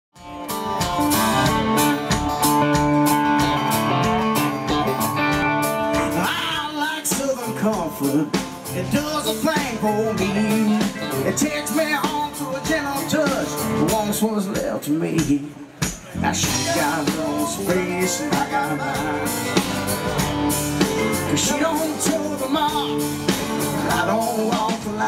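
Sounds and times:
country-rock band playing: 0.2 - 25.0
male lead vocal: 5.8 - 20.0, 21.0 - 25.0.

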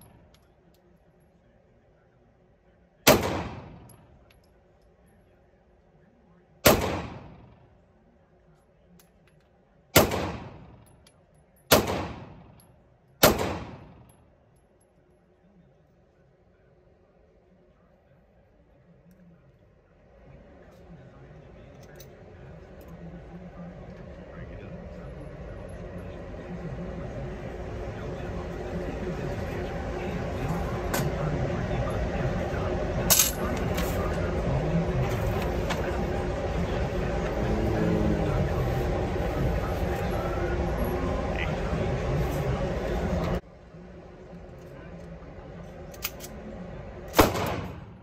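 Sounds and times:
pistol shots echoing indoors: 3.1 - 4.0, 6.7 - 7.4, 10.0 - 10.7, 11.7 - 12.4, 13.2 - 13.9, 47.1 - 48.0
target carrier mechanical rumble: 20.9 - 48.0.

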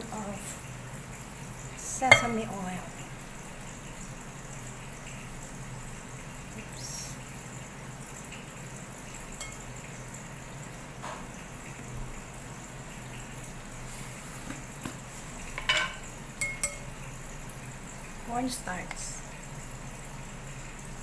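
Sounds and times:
spoons clinking against glass bowl: 2.1 - 2.5, 9.4 - 9.7, 15.6 - 17.0.

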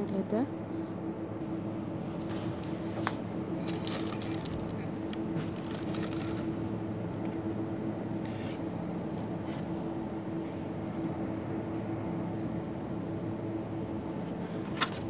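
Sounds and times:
steady low hum: 0.0 - 15.0
boxes rustling and scraping: 2.0 - 6.5.

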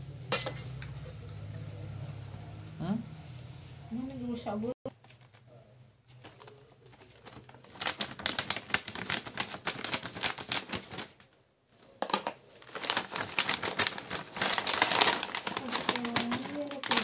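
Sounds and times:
plastic packet crinkling: 6.1 - 11.4, 12.0 - 17.0.

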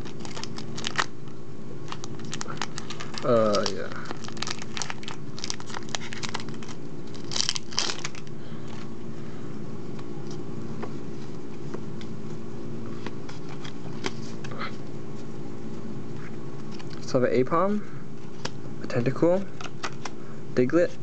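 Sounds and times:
foil wrapper crinkling and tearing: 0.0 - 1.2, 1.8 - 8.8
steady low hum: 0.0 - 21.0.

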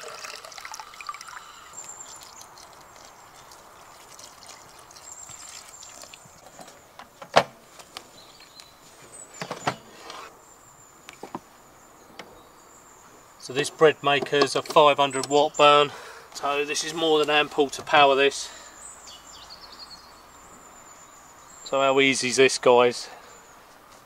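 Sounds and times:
water running into steel mug: 0.0 - 6.2
water pouring into a pan: 0.0 - 6.4.

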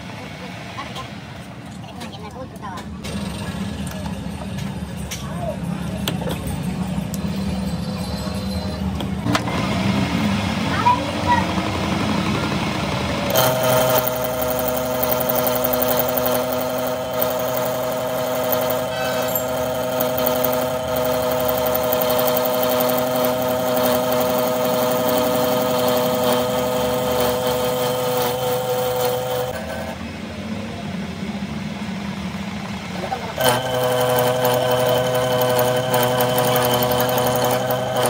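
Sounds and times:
metal lathe running: 12.8 - 30.1, 33.3 - 38.0
whine of lathe cutting: 13.3 - 30.0, 33.4 - 38.0.

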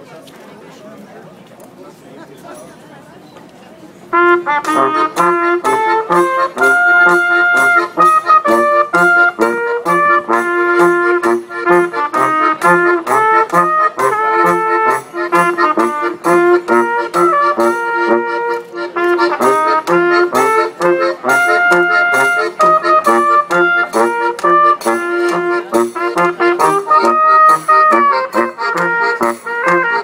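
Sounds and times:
button accordion: 4.1 - 30.0
trumpet melody: 4.1 - 30.0
tuba bass: 4.1 - 30.0.

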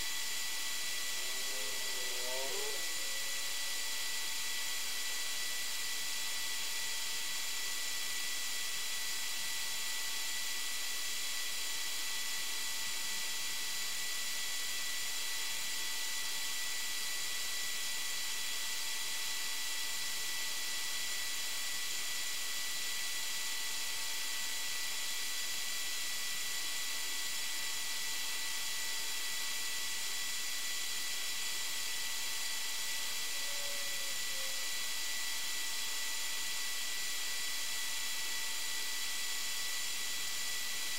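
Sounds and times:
faint high whine: 0.0 - 40.9.

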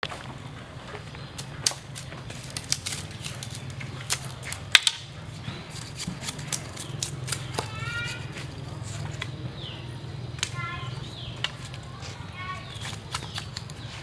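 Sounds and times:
knife splitting bamboo: 1.4 - 9.4, 11.2 - 14.0.

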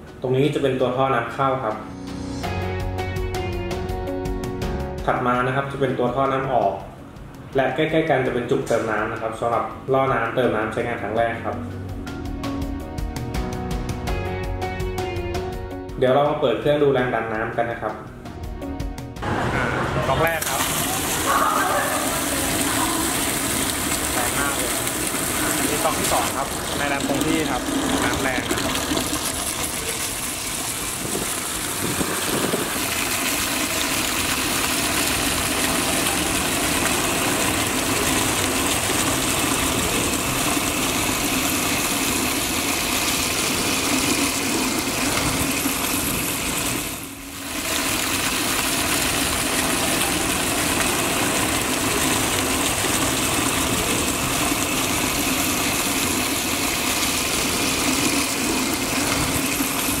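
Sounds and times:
water pump motor humming: 1.4 - 10.2, 18.3 - 60.0
water gushing from taps: 20.0 - 60.0.

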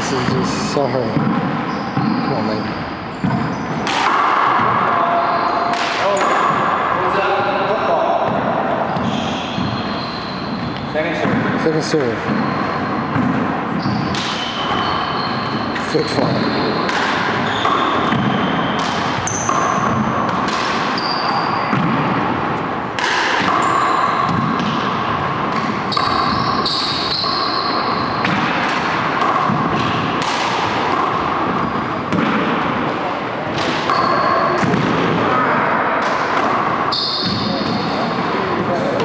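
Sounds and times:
sneaker squeaks on wooden floor: 1.0 - 4.0, 4.6 - 6.8, 8.2 - 22.3, 23.3 - 32.2, 33.5 - 35.6, 36.7 - 39.0
racquetball ball cracking: 3.2 - 5.0, 5.7 - 6.8, 16.8 - 35.3.

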